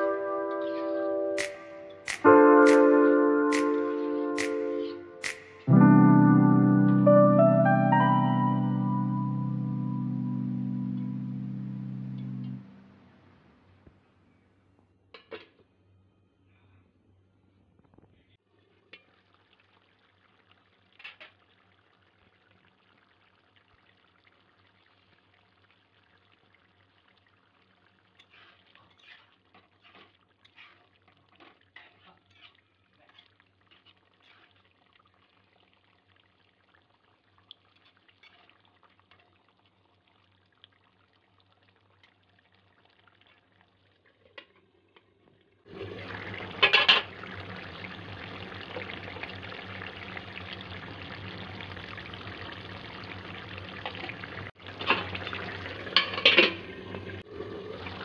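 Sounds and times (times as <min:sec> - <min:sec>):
gravy simmering and bubbling: 0:18.4 - 0:58.0.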